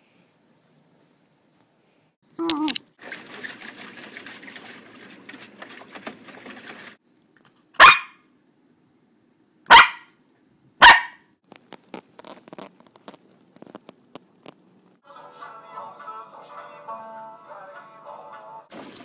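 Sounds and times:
splashing in shallow water: 3.0s - 7.0s
small dog barking: 7.8s - 8.2s, 9.7s - 10.2s, 10.8s - 11.2s.

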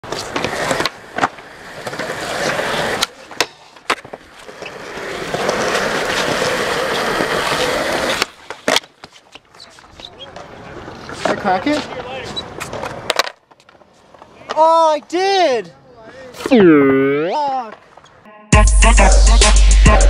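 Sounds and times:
skateboard clacks: 0.0s - 14.9s
skateboard wheels rolling on concrete: 0.0s - 18.2s.

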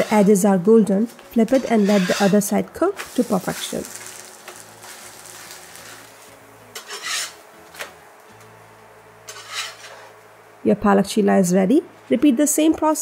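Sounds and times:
metal spatula scraping iron pan: 0.0s - 0.4s, 1.4s - 2.5s, 6.7s - 7.4s, 9.3s - 10.1s
faint sizzle: 0.0s - 7.5s.

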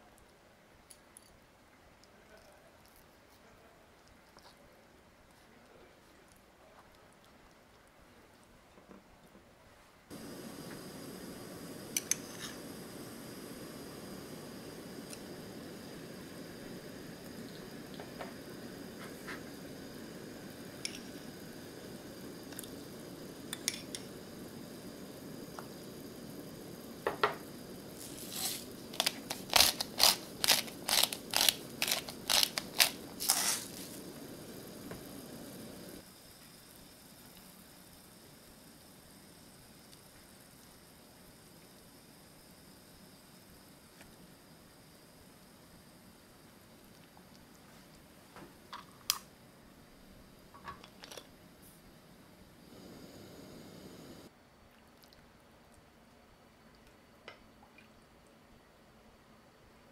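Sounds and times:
gas burner rush: 10.1s - 47.1s, 52.4s - 54.3s
low steady hum: 10.1s - 59.9s
pepper mill grinding: 22.5s - 24.5s, 26.9s - 35.2s.

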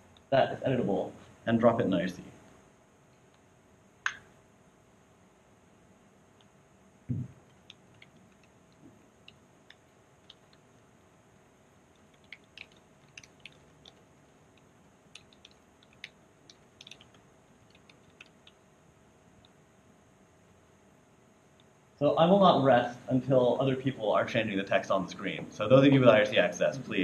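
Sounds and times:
low thump: 7.1s - 7.3s
laptop keyboard typing: 7.2s - 18.7s.

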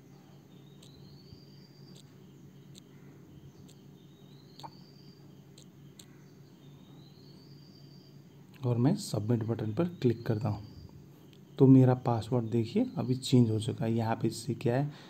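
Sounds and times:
high rising chirp: 0.0s - 8.2s
steady low hum: 0.0s - 15.0s.

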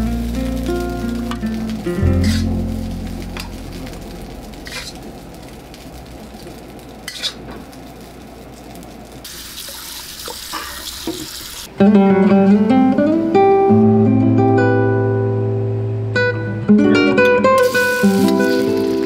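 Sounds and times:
faint steady hiss: 0.0s - 19.0s
tap water splashing into a wok: 9.3s - 11.5s.

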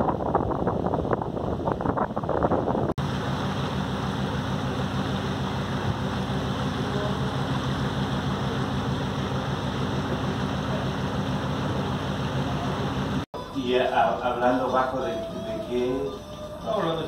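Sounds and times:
wind buffeting microphone: 0.0s - 3.9s
water rushing along hull: 0.0s - 13.2s
ship engine drone: 0.1s - 13.5s.

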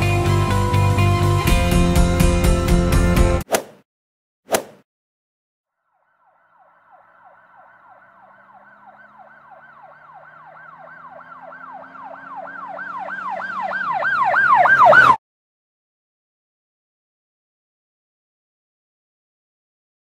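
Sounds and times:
emergency siren yelping: 5.9s - 15.2s.

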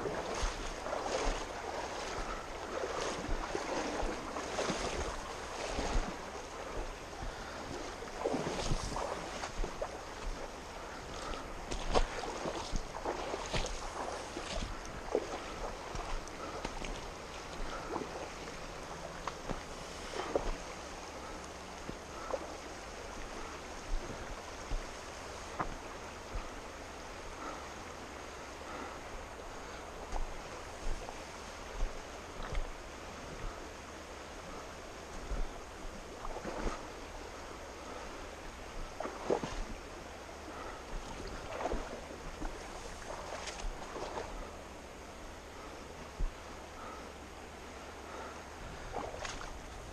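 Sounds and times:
wind buffeting microphone: 0.0s - 26.9s
fast river rushing: 0.0s - 49.9s.

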